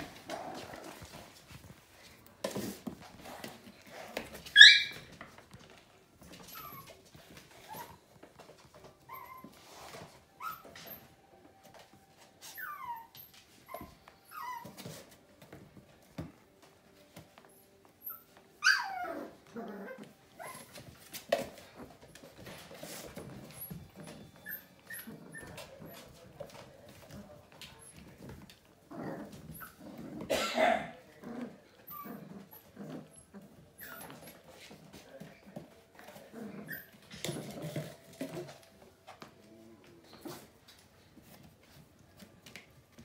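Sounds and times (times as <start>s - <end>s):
puppies yelping and whining: 4.4s - 5.2s, 6.3s - 8.0s, 9.0s - 11.1s, 12.4s - 14.9s, 18.0s - 21.0s, 23.2s - 25.8s.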